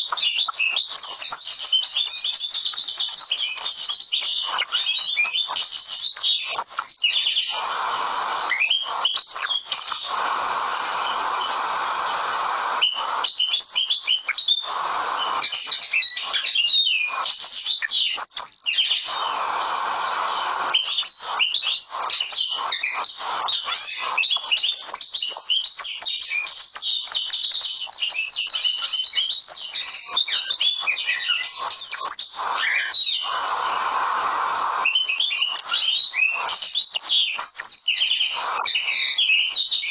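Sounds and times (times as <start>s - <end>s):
bird twittering song: 0.0s - 39.9s
steady hiss: 0.0s - 39.9s.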